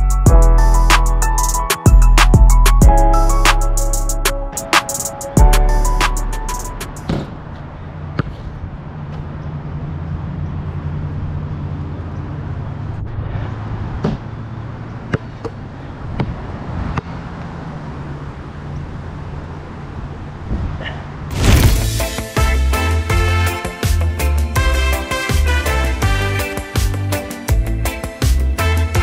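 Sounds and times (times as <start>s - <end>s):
basketball bouncing on asphalt: 8.1s - 9.3s, 15.0s - 17.1s
wind rumble on microphone: 20.0s - 22.0s.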